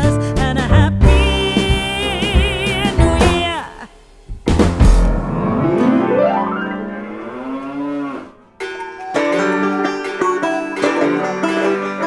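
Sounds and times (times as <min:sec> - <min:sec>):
banjo country music: 0:00.0 - 0:03.7, 0:08.6 - 0:12.0
moo-like call: 0:06.4 - 0:08.5.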